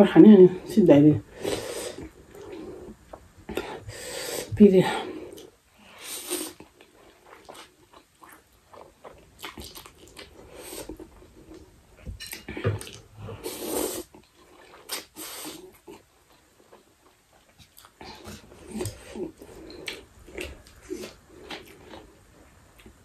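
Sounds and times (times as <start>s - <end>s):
wet chewing noises: 6.2s - 22.1s
person slurping noodles: 13.2s - 14.2s.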